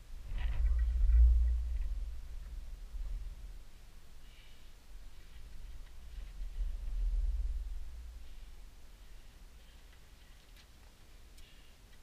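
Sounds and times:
wind buffeting microphone: 0.0 - 3.7, 5.5 - 8.7.

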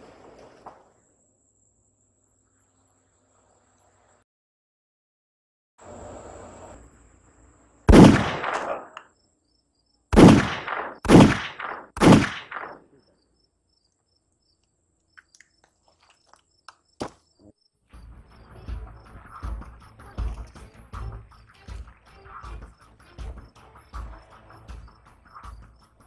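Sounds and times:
pistol shots with echo: 7.9 - 9.0, 10.2 - 13.0.

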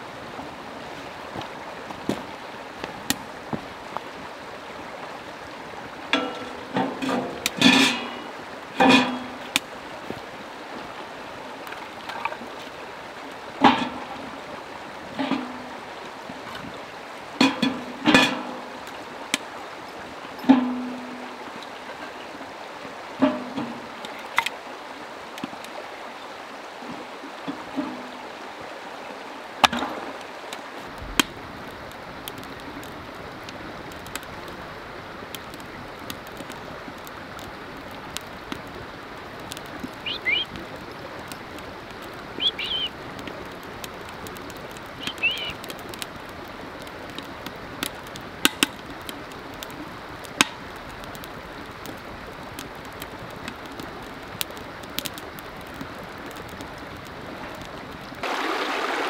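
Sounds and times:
creek running: 0.0 - 59.0
short bird chirps: 40.0 - 40.5, 42.4 - 42.9, 45.0 - 45.6.

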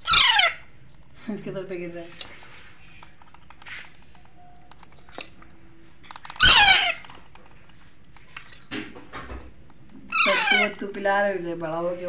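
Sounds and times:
parakeet chick squawk: 0.0 - 0.7, 6.3 - 7.1, 10.1 - 10.8.

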